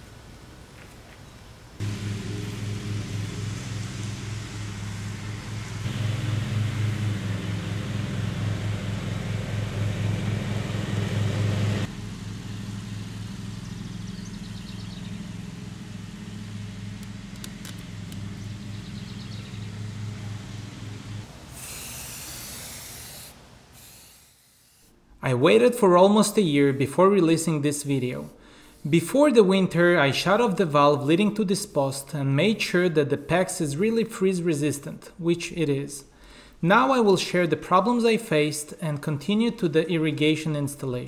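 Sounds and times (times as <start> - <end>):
low machine hum: 1.8 - 21.6
spray can spraying: 21.5 - 25.0.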